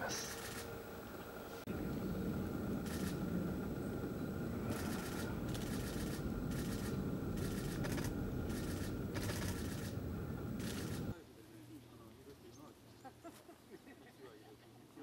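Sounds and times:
steady low rumble: 0:00.0 - 0:11.1
dry rustling bursts: 0:02.7 - 0:11.1.

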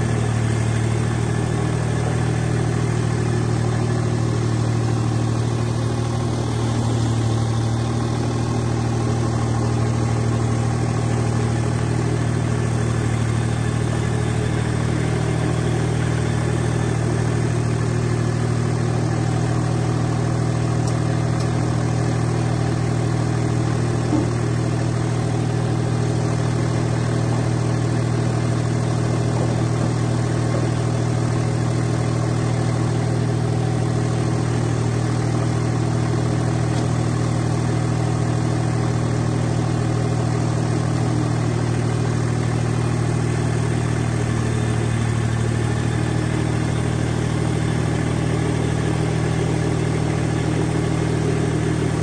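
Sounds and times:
tractor diesel engine running: 0:00.0 - 0:52.0.

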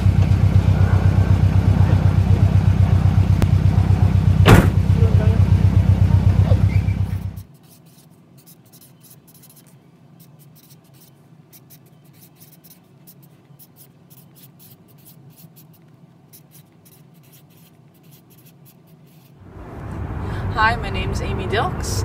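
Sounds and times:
faint low hum: 0:00.0 - 0:22.0
marker writing on card: 0:07.3 - 0:19.4.

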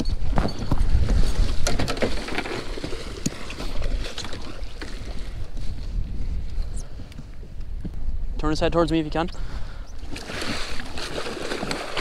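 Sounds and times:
wind rumbling on microphone: 0:00.0 - 0:12.0
gear clattering on boat deck: 0:01.4 - 0:05.1.

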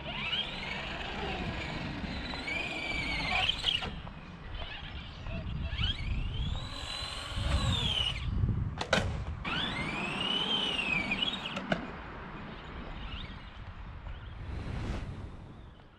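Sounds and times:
electric motor whining: 0:00.0 - 0:08.3.

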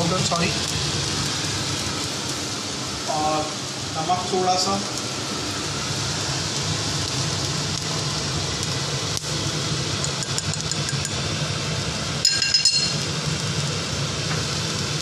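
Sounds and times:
extractor hood fan humming: 0:00.0 - 0:15.0
spoon clinking against wok: 0:10.0 - 0:11.2, 0:12.2 - 0:13.0.

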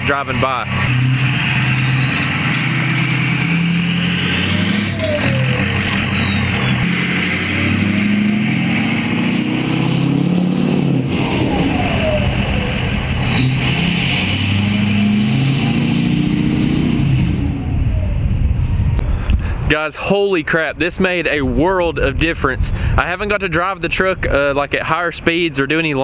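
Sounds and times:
diesel engine running: 0:00.0 - 0:19.5
turbo whistling: 0:00.9 - 0:19.1.

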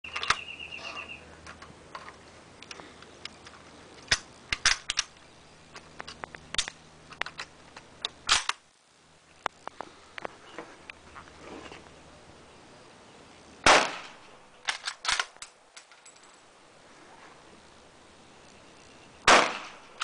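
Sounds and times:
rifle loading clicks and clacks: 0:01.4 - 0:08.6, 0:14.6 - 0:16.3
loud sharp cracks: 0:13.6 - 0:15.6, 0:19.2 - 0:20.0.

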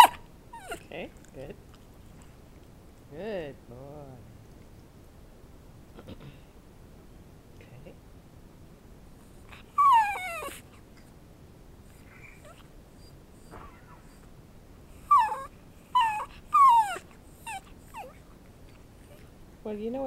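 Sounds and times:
dog whining: 0:00.0 - 0:00.9, 0:09.3 - 0:11.1, 0:11.9 - 0:19.4.

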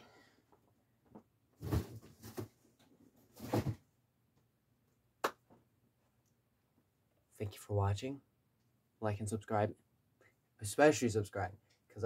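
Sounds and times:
cardboard box rustling and bumping: 0:03.3 - 0:03.8.

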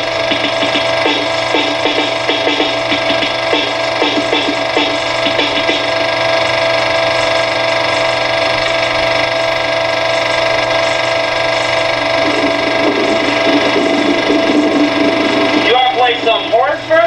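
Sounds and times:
machine hum with held tones: 0:00.0 - 0:17.0.

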